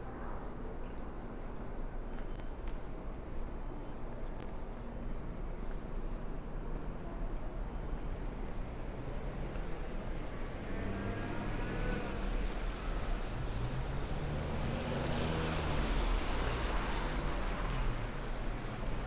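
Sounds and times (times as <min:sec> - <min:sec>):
vehicle passing: 0:10.5 - 0:12.6.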